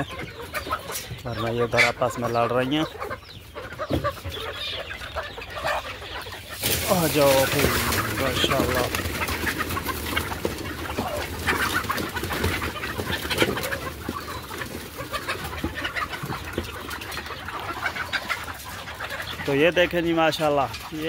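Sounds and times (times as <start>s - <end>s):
chickens clucking and squawking: 0.0s - 21.0s
chickens scratching: 0.0s - 21.0s
wings flapping: 6.5s - 15.4s.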